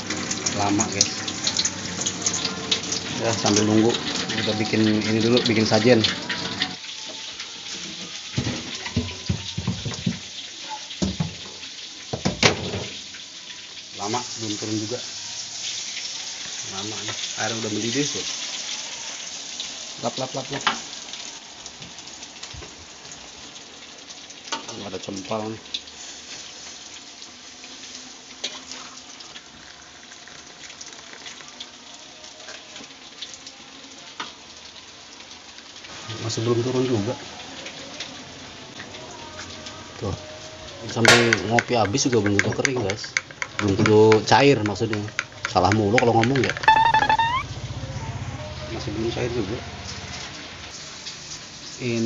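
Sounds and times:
water gushing from hose: 0:00.0 - 0:10.3, 0:11.0 - 0:31.6, 0:48.6 - 0:52.0.

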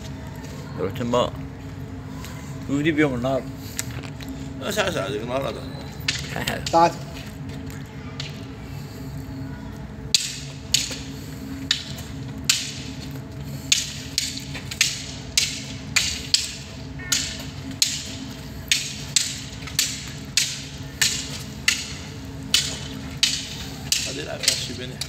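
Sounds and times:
low steady hum: 0:00.0 - 0:25.0
sticks clacking: 0:06.0 - 0:07.3, 0:08.2 - 0:08.5, 0:10.1 - 0:25.0.

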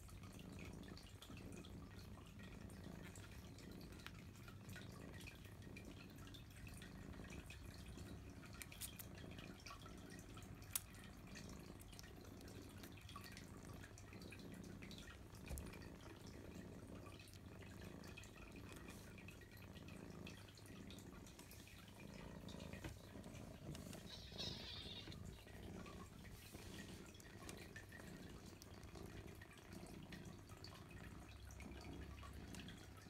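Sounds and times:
kittens suckling wet clicks: 0:07.4 - 0:33.0.

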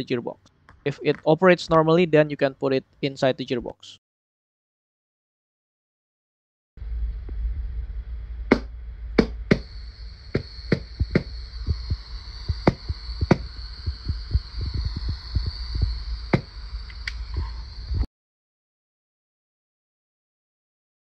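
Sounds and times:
low rumble: 0:06.8 - 0:18.1.

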